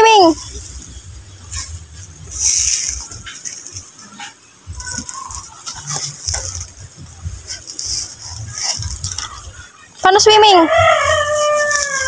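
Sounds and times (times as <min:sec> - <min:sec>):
pebbles clattering and scraping: 0:00.4 - 0:09.7.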